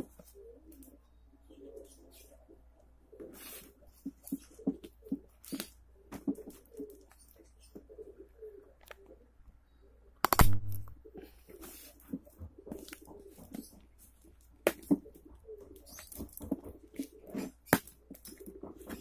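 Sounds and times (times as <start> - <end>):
dove cooing: 0.0 - 10.2, 11.0 - 19.0
sharp clicks: 10.2 - 11.0.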